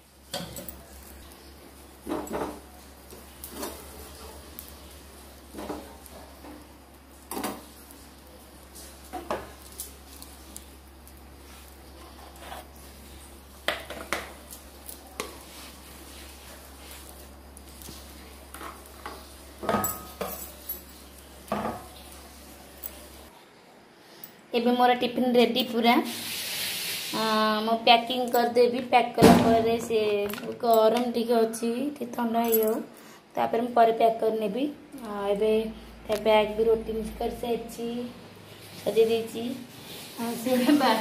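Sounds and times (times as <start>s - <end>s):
steel spatula scraping on griddle: 26.1s - 27.2s, 39.7s - 41.0s.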